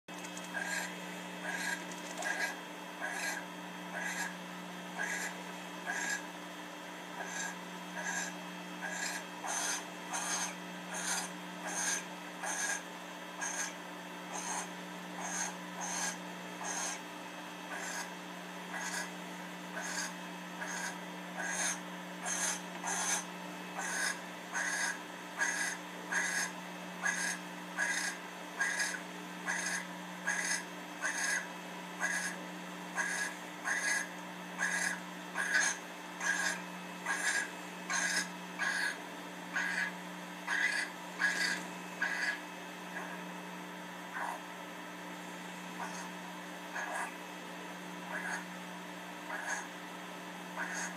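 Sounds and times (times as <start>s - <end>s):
barn owl rasping hiss call: 0.6s - 4.4s, 5.0s - 6.2s, 7.2s - 17.0s, 17.7s - 18.1s, 18.7s - 19.1s, 19.8s - 32.4s, 33.0s - 42.4s, 46.8s - 47.2s, 48.1s - 48.5s, 49.3s - 49.7s, 50.6s - 50.9s.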